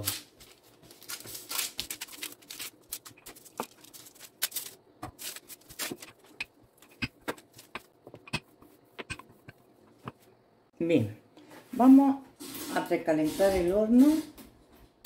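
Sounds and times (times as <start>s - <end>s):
paper rustling: 0.0s - 7.8s.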